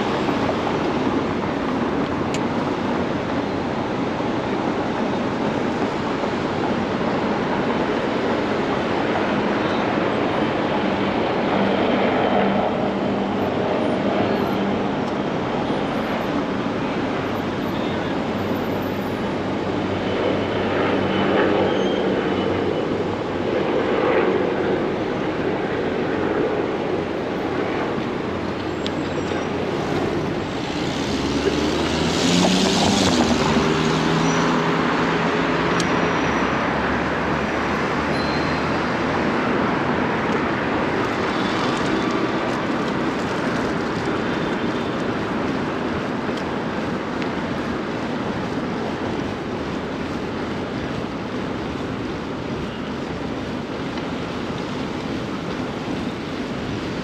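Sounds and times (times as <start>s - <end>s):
traffic road noise: 0.0s - 57.0s
vehicle engine humming close by: 28.7s - 37.6s.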